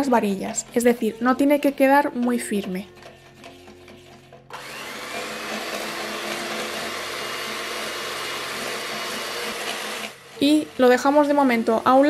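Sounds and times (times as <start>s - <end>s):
electric hand mixer whirring: 4.5s - 12.0s.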